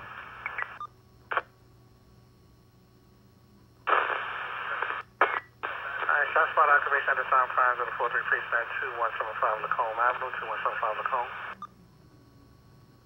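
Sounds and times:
hissing radio static: 3.9 - 11.6
radio squelch burst: 3.9 - 11.6.

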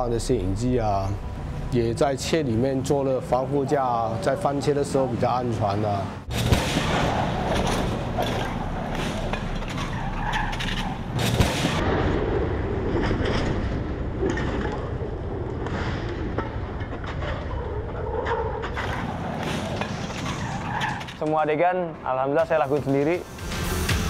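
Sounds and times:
sharp bang: 6.3 - 12.4
tyres skidding on asphalt: 7.1 - 11.1, 18.3 - 21.2.

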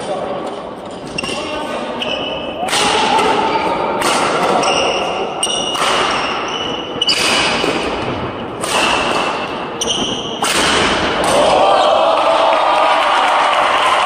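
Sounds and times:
shoes squeaking on court floor: 0.4 - 2.6, 4.4 - 10.5
rackets striking shuttlecock: 2.5 - 11.6.

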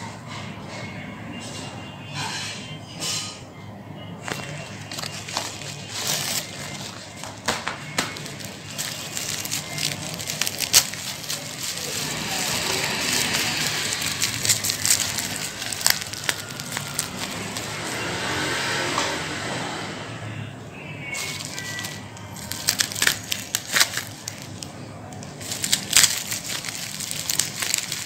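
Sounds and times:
bubble wrap rustling and crackling: 4.2 - 18.6, 21.1 - 28.0.

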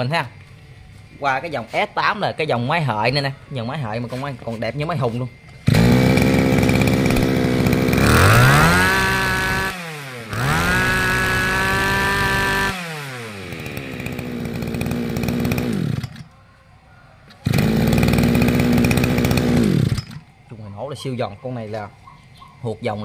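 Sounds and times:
brush cutter engine idling and revving: 4.9 - 16.4, 17.3 - 20.3.

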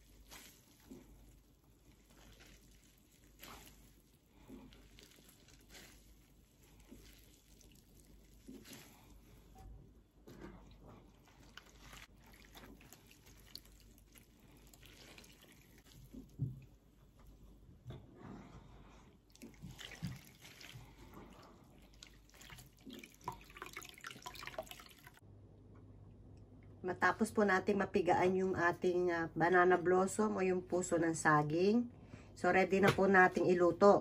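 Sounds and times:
water drips and splashes: 0.0 - 9.5, 10.6 - 16.9, 19.2 - 25.2
hands squeezing wet blossom: 0.0 - 17.7, 18.8 - 25.2.

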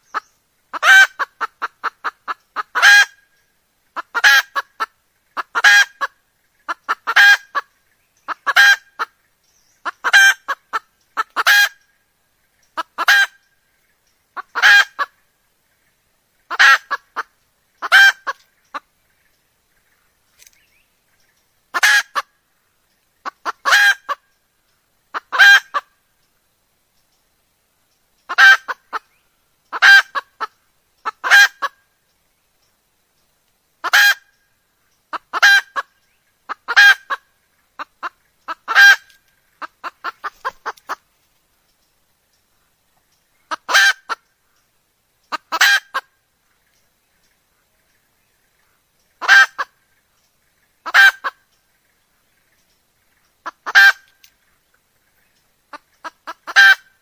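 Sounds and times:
hen cackling calls: 0.0 - 3.3, 3.9 - 9.2, 9.8 - 11.9, 12.6 - 13.5, 14.4 - 15.3, 16.5 - 18.9, 21.7 - 22.4, 23.2 - 24.3, 25.1 - 26.0, 28.3 - 31.9, 33.8 - 34.4, 35.1 - 41.1, 43.4 - 44.3, 45.3 - 46.2, 49.1 - 49.8, 50.8 - 51.4, 53.4 - 54.2, 55.7 - 57.0.

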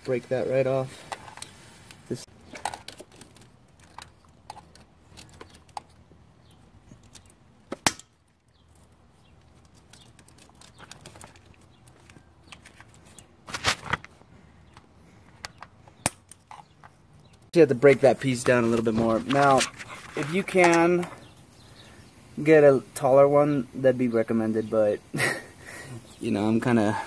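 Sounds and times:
plastic cracking: 2.5 - 6.0, 7.0 - 14.1.

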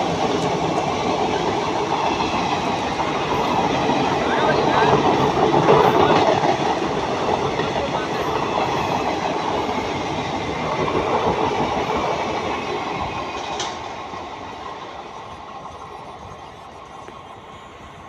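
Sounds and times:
train rumbling over rails: 0.0 - 18.0.

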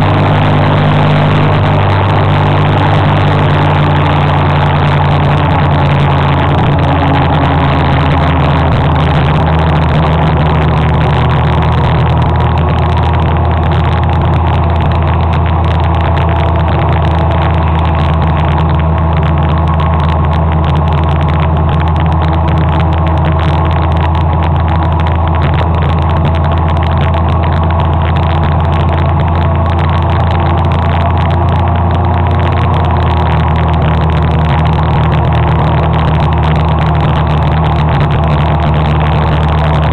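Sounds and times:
motor scooter engine droning: 0.0 - 39.9.

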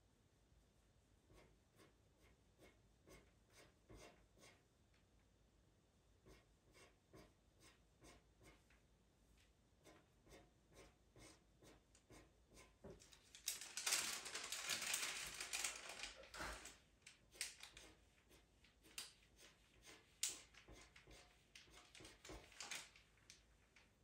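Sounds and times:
pastel pencil scratching on paper: 1.3 - 4.7, 6.2 - 8.8, 9.8 - 13.2, 17.2 - 23.0.

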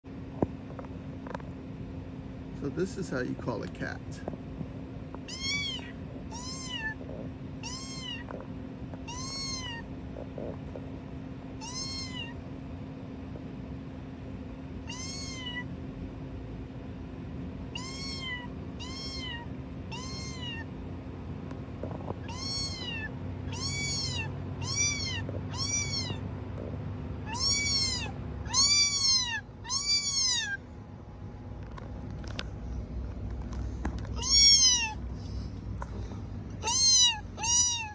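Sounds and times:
cat meowing: 5.2 - 8.4, 9.0 - 9.9, 11.6 - 12.4, 14.8 - 15.7, 17.7 - 20.7, 22.2 - 26.2, 27.2 - 30.6, 34.1 - 35.0, 36.6 - 37.9.

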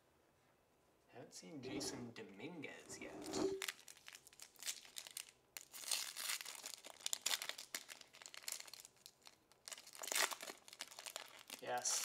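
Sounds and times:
foil wrapper crinkling and tearing: 3.6 - 12.0.

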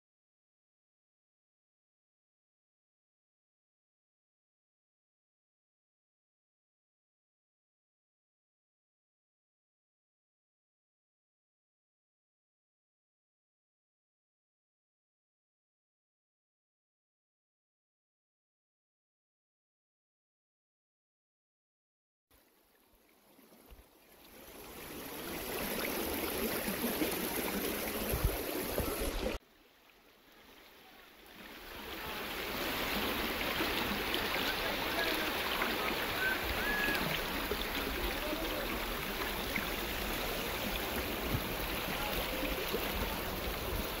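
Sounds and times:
river water rushing over rocks: 24.4 - 29.4, 30.5 - 44.0.

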